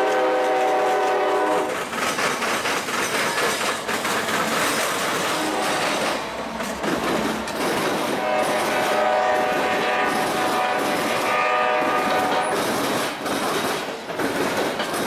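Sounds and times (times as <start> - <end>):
train horn: 0.0 - 1.7, 5.3 - 6.2, 8.0 - 12.6
freight cars clickety-clack: 0.0 - 15.0.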